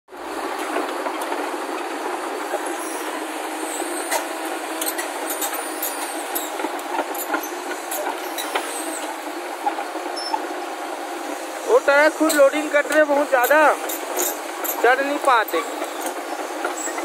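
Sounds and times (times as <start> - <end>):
crawler excavator running: 0.1 - 17.0
short high squeaks: 15.5 - 17.0.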